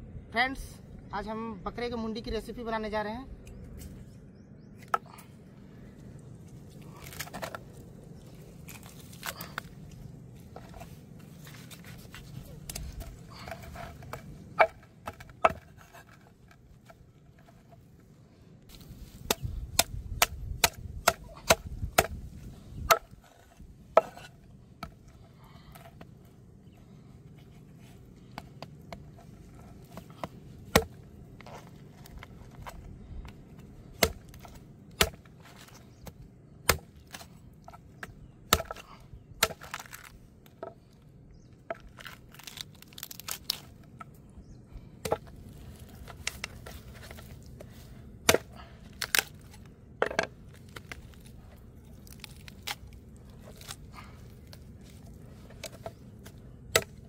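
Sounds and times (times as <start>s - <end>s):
cleaver chopping on wooden board: 13.6s - 16.0s, 19.2s - 22.2s, 30.0s - 31.0s, 34.0s - 35.3s, 38.0s - 38.8s, 48.2s - 49.3s.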